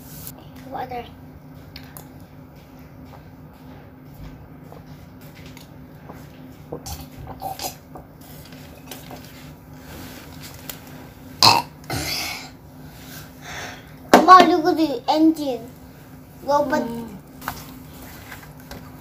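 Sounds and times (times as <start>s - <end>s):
child burping: 11.4s - 12.6s.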